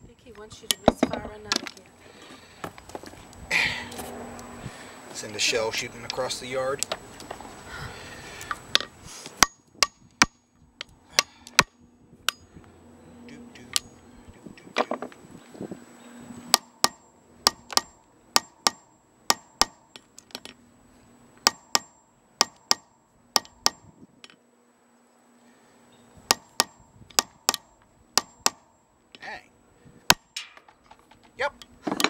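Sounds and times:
hammer cracking nuts: 0:08.4 - 0:12.4, 0:16.5 - 0:20.6, 0:21.4 - 0:24.4, 0:26.3 - 0:28.7, 0:30.1 - 0:32.0.

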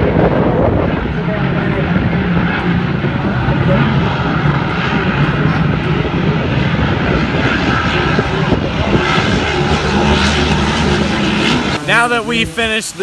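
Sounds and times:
racing boat engines droning: 0:00.0 - 0:13.0.

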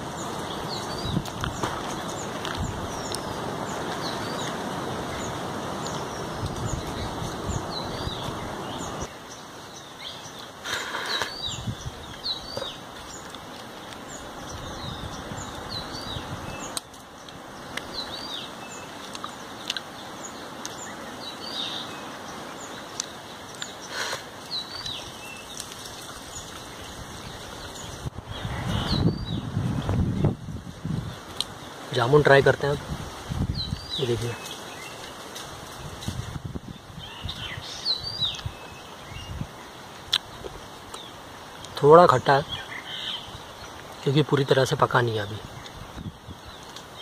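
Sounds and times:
small birds chirping: 0:00.0 - 0:47.0
leaf plate rustling: 0:10.4 - 0:14.8, 0:23.0 - 0:28.0.

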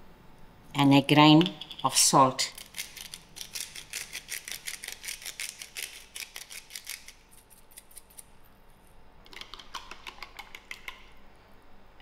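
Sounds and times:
salt grinder grinding: 0:02.6 - 0:08.2.

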